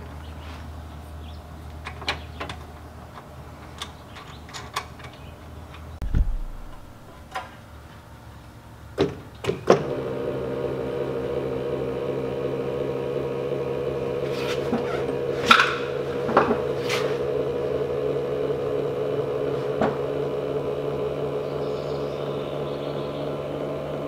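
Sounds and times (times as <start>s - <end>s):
electric actuator humming: 1.3s - 7.8s, 9.6s - 24.0s
thud: 6.0s - 7.2s.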